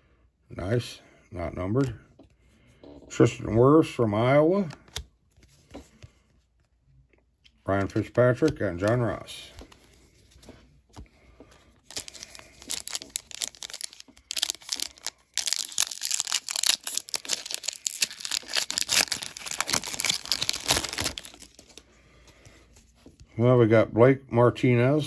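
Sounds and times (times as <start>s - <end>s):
foil wrapper tearing and crinkling: 11.8s - 21.8s.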